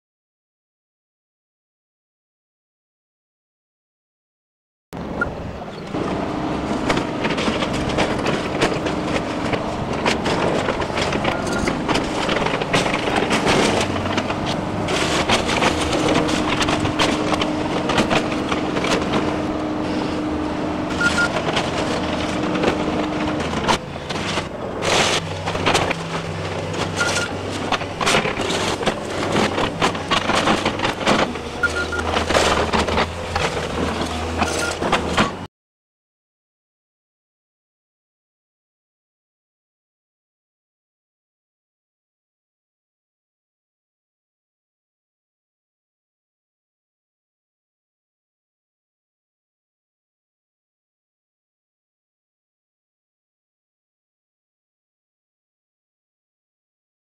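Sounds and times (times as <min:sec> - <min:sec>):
excavator diesel engine: 0:05.0 - 0:35.5
crunching of breaking wood: 0:21.3 - 0:35.4.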